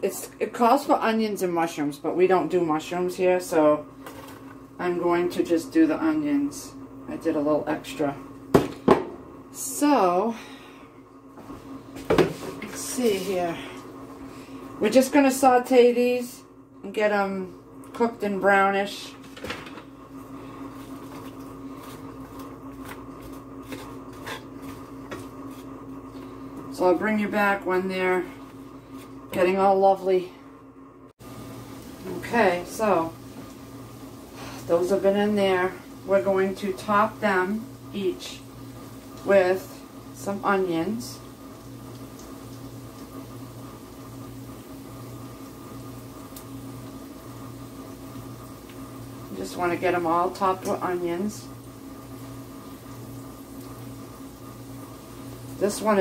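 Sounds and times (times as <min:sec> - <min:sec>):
steady low hum: 0:00.0 - 0:56.0
onions sizzling in oil: 0:31.2 - 0:56.0
faint stirring ticks: 0:41.9 - 0:43.3.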